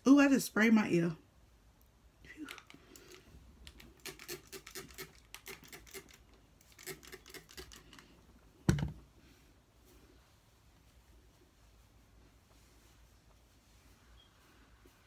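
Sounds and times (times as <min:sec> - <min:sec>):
spray bottle spritzing: 0:04.0 - 0:06.2
loud thump near microphone: 0:08.7 - 0:09.0.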